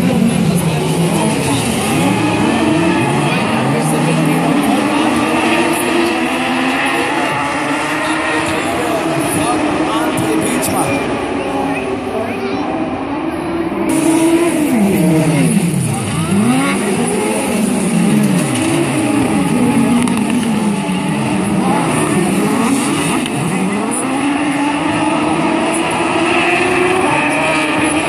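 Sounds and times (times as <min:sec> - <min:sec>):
racing buggy engines: 0:00.0 - 0:28.0.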